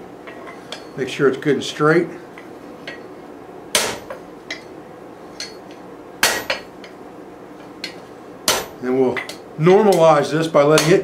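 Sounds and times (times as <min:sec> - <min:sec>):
hammer blows on anvil: 0:06.2 - 0:06.7, 0:08.4 - 0:10.1.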